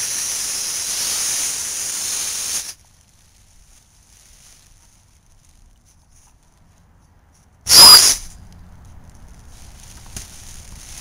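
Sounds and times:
loud rush of hissing gas: 0.0s - 2.8s, 7.7s - 8.3s
faint steady hiss: 0.0s - 11.0s.

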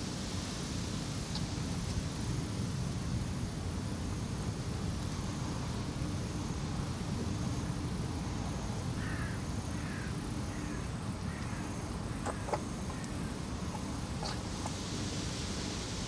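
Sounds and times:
crow cawing faintly: 9.0s - 14.4s.

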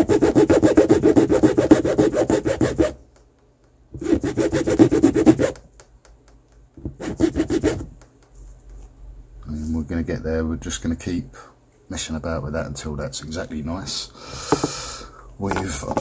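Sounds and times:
metal file rasping on plastic: 0.0s - 3.0s, 4.0s - 5.6s, 6.8s - 8.0s.

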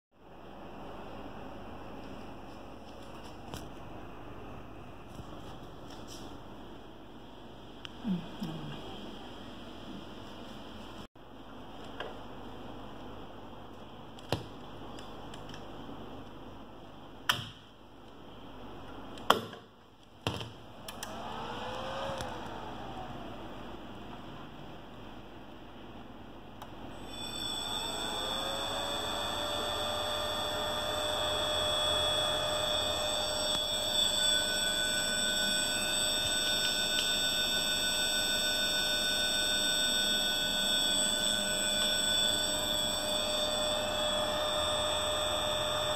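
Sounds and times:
steady electrical hum: 0.2s - 45.9s
faint rising and falling tone: 20.9s - 25.2s
electric motor whine: 21.0s - 23.6s, 27.0s - 45.9s.

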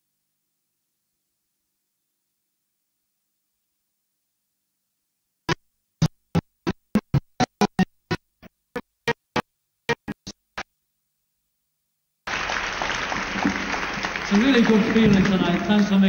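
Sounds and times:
staccato keyboard notes: 6.0s - 10.7s
hall room noise: 12.3s - 16.0s.

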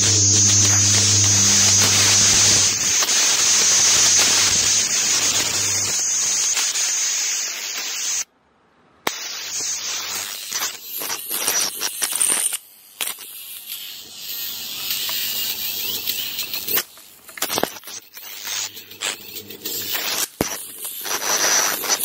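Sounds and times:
low mains hum: 0.0s - 5.8s
plasma arc crackling: 0.0s - 8.3s, 9.0s - 22.0s
plasma arc hissing with high whine: 0.0s - 8.3s, 9.0s - 22.0s.

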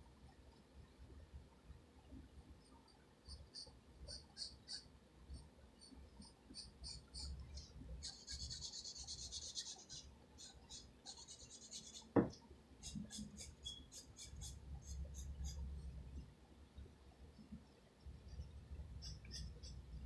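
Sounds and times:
pencil scratching on paper: 8.0s - 15.6s
dull knock: 12.1s - 12.4s.

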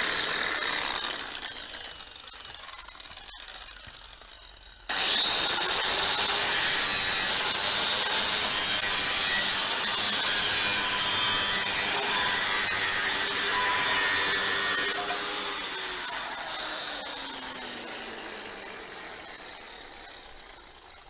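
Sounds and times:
angle grinder cutting concrete: 0.0s - 21.0s.

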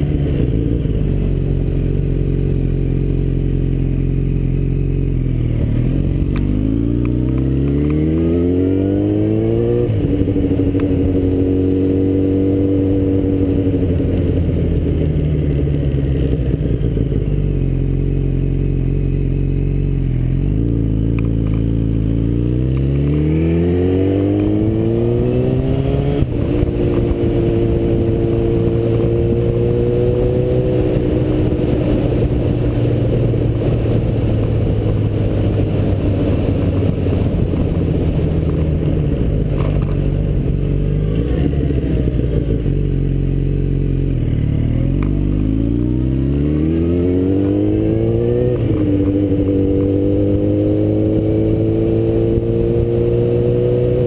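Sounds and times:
motorcycle engine: 0.0s - 54.0s
gear change thump: 26.0s - 29.9s, 33.2s - 40.4s.

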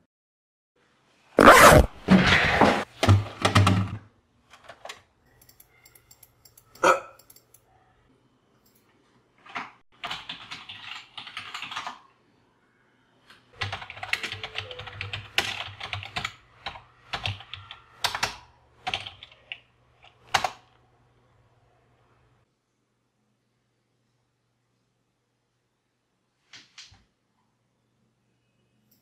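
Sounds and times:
computer keyboard typing: 9.5s - 12.0s, 13.6s - 20.7s.

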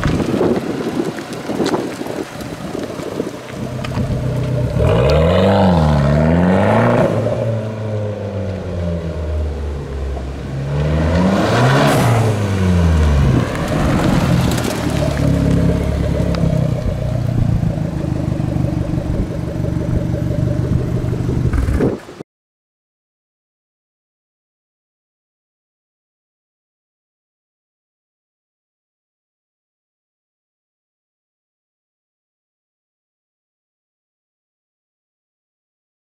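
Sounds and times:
car engine through exhaust: 0.0s - 22.2s.

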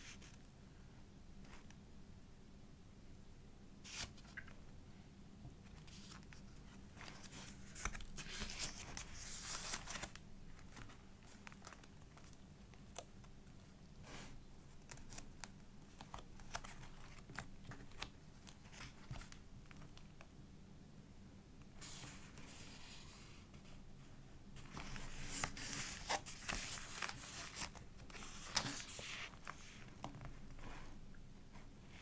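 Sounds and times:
paper pages rustling: 3.9s - 4.6s, 5.6s - 13.4s, 14.7s - 20.0s, 24.6s - 30.6s.

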